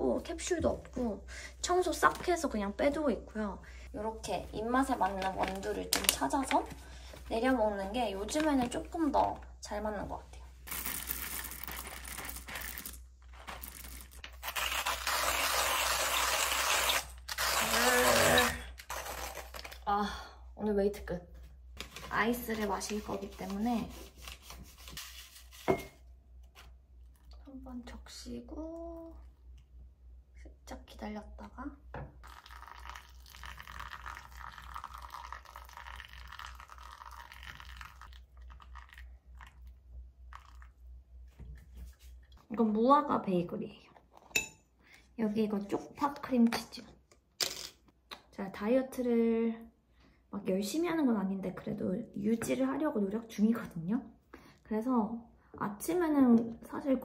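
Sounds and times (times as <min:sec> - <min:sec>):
coffee beans rattling: 0:10.7 - 0:14.2
hand grinder crunching beans: 0:10.7 - 0:19.8
water pouring onto coffee grounds: 0:32.2 - 0:40.8.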